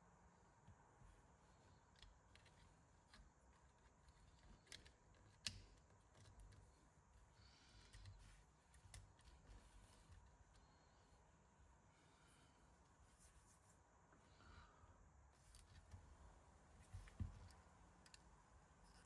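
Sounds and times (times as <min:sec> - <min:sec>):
small plastic parts clicking: 0:01.8 - 0:06.8, 0:17.0 - 0:18.3.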